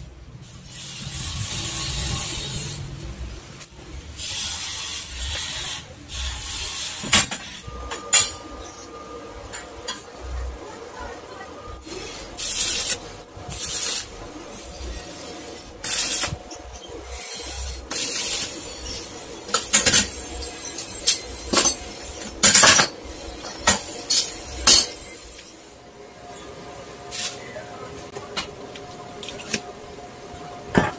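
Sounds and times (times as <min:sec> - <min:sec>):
arc welding hissing bursts: 0:00.4 - 0:07.7, 0:11.8 - 0:25.8, 0:27.1 - 0:27.5.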